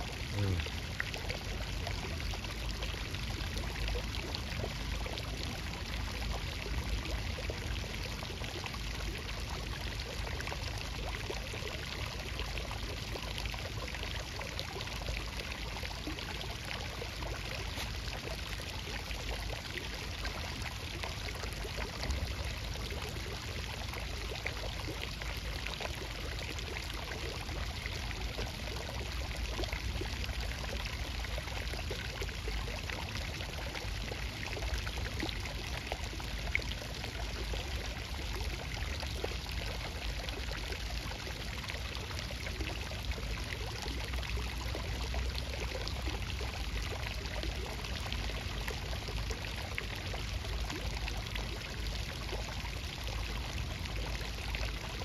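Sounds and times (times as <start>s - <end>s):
flowing water rushing: 10.8s - 43.7s.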